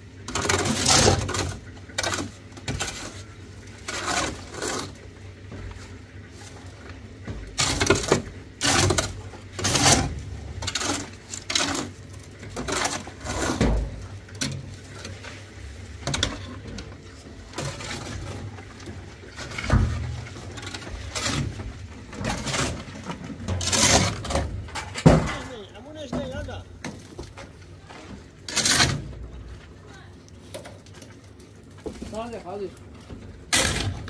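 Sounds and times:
shovels scraping wet concrete: 0.3 - 5.1, 7.5 - 16.6, 17.5 - 27.6, 28.4 - 29.5, 33.4 - 34.0.

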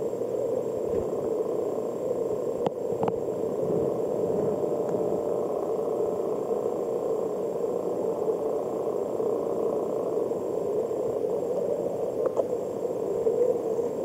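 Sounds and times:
muffled underwater noise: 0.0 - 14.0
faint clicks: 2.6 - 3.2, 12.2 - 12.6.

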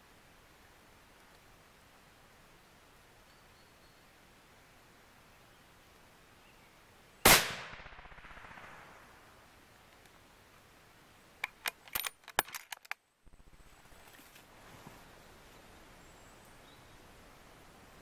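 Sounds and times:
rifle shot: 7.2 - 9.3.

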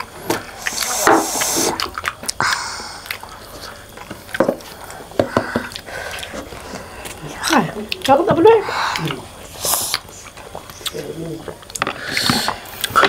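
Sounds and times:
slurping from cups: 0.3 - 7.2, 11.8 - 13.0
wet mouth smacks: 0.6 - 4.8, 8.9 - 11.0.

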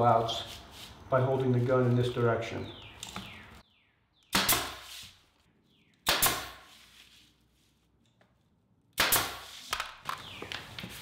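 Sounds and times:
nail gun firing: 4.3 - 4.8, 6.0 - 6.6, 9.0 - 10.0.

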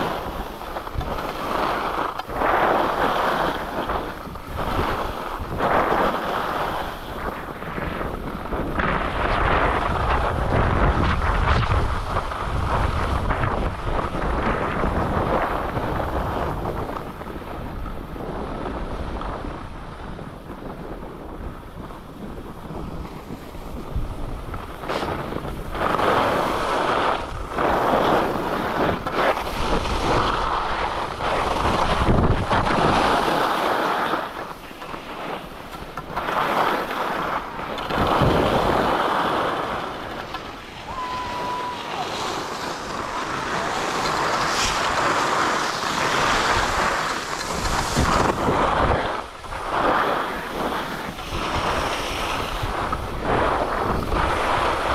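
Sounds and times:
skis scraping on snow: 0.0 - 54.9
wind on microphone: 0.0 - 54.9.

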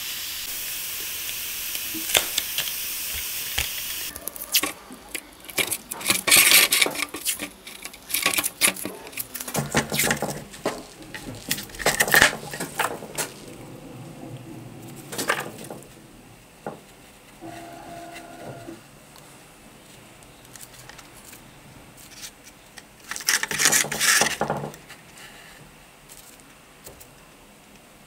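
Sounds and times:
steady hiss: 0.0 - 28.0
tape ripping and crinkling: 1.7 - 13.4, 20.2 - 24.3.

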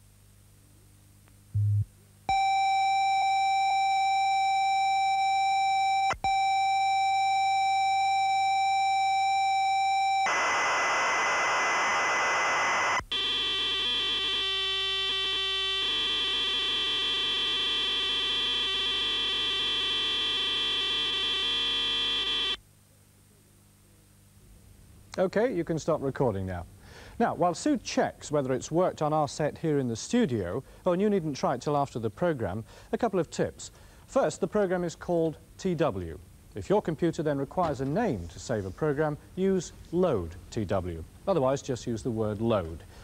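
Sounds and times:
harsh tape hiss: 0.0 - 43.0
high leader tone: 1.6 - 4.4
buzzing data tones: 1.6 - 5.4, 6.6 - 22.6.

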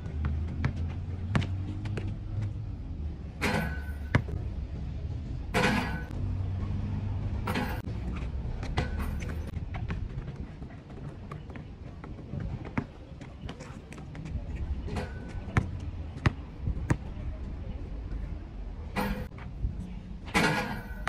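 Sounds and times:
basketball bouncing on concrete: 0.0 - 2.6, 15.1 - 17.1.

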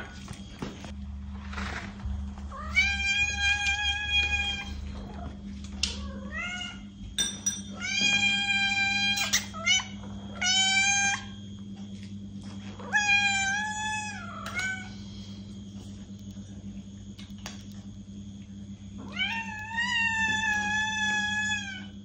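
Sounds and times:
cats meowing: 2.4 - 7.0, 7.7 - 11.4, 12.7 - 15.0, 19.0 - 22.0.

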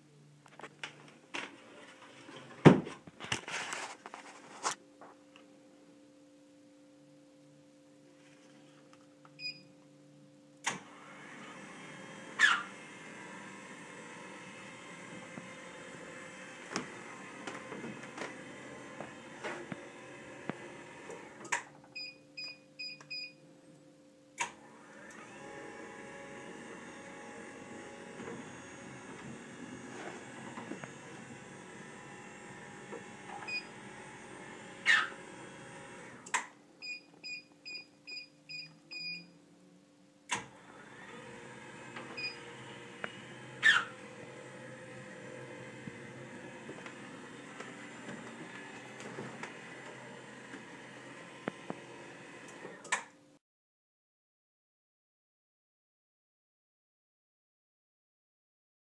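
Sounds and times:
brief rustle: 3.0 - 4.8
faint steady hum: 4.2 - 11.0
stair lift motor humming: 10.9 - 21.5, 24.7 - 36.3, 40.4 - 52.8
stair lift beeps: 22.0 - 23.4, 33.4 - 33.8, 36.8 - 39.3, 42.2 - 42.5.

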